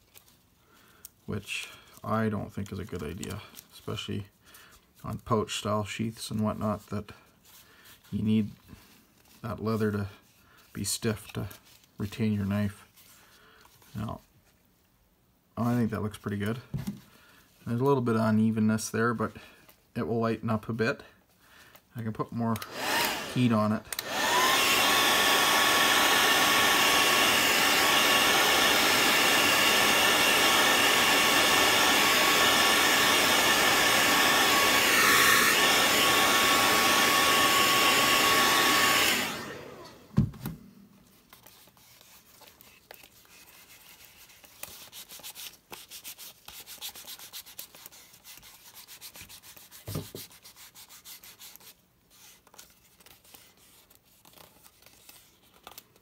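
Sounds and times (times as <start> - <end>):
hair dryer running: 22.6 - 40.8.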